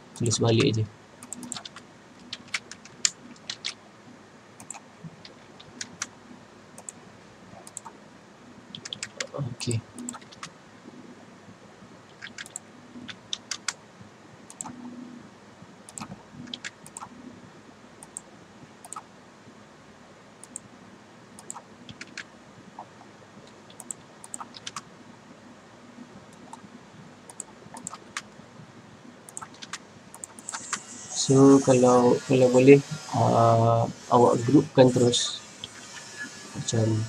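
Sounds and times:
faint room noise: 0.0 - 37.0
mouse and keyboard clicks: 0.2 - 3.8, 4.6 - 6.1, 7.6 - 8.0, 8.7 - 9.4, 10.0 - 10.5, 12.1 - 13.8, 14.5 - 14.8, 15.9 - 17.1, 18.0 - 19.0, 21.4 - 22.9, 23.5 - 24.8, 27.3 - 28.3, 29.3 - 30.8.

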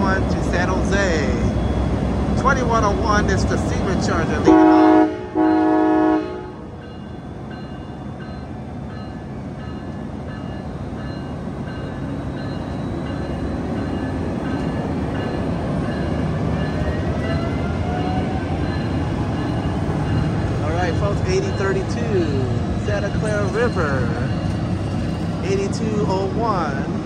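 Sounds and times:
train wheels and engine rumble: 0.0 - 27.0.

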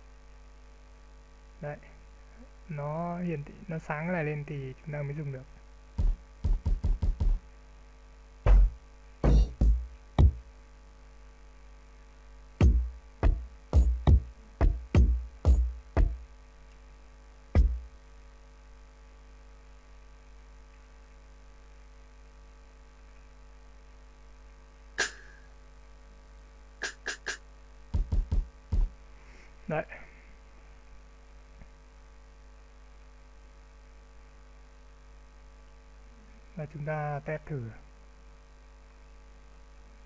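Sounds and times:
deep kick drum hits: 6.0 - 7.4, 8.5 - 10.4, 12.6 - 16.2, 17.6 - 17.9, 27.9 - 29.0
snare drum hits: 8.5 - 10.4, 12.6 - 16.2, 17.6 - 17.8, 25.0 - 25.4, 26.8 - 27.4.

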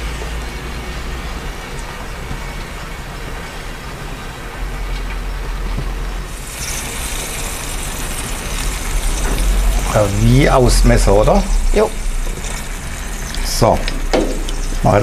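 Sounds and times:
oil sizzling in pan: 4.8 - 15.0
low rumble: 8.3 - 14.9.

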